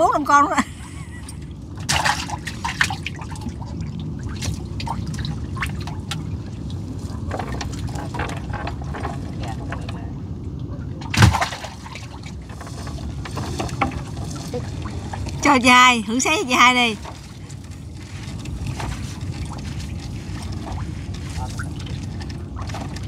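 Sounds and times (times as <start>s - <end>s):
low rumble: 0.0s - 23.0s
water splashing and dripping: 1.7s - 9.9s, 16.7s - 23.0s.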